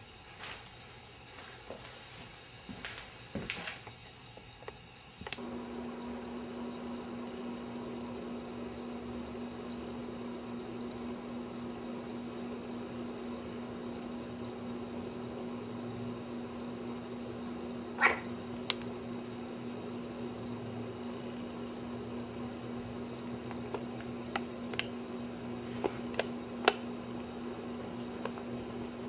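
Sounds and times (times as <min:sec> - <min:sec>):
steady low hum with hiss: 0:00.0 - 0:29.0.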